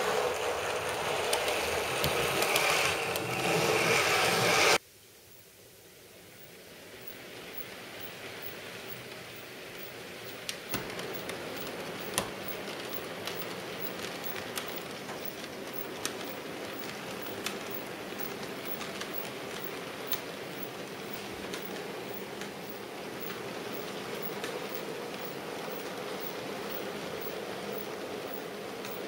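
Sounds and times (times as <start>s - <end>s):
model train motor whirring: 0.0s - 4.8s
wheels clicking on track: 0.0s - 4.8s, 6.9s - 29.0s.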